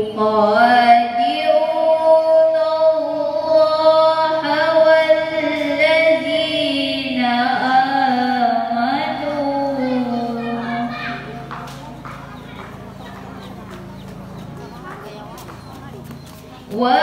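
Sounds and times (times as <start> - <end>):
woman chanting into a microphone: 0.0 - 11.4, 16.7 - 17.0.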